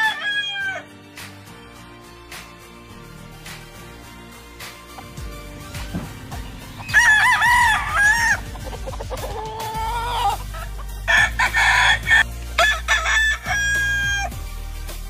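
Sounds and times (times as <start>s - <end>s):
rooster crowing: 0.0s - 0.9s, 6.8s - 8.5s, 11.1s - 14.3s.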